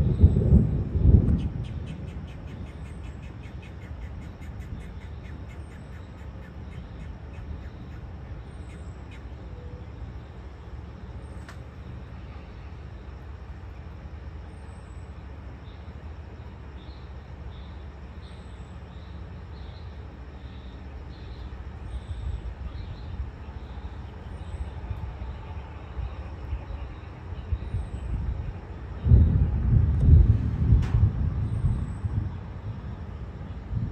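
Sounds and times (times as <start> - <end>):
thunder rumbling: 0.0 - 2.3, 27.6 - 33.9.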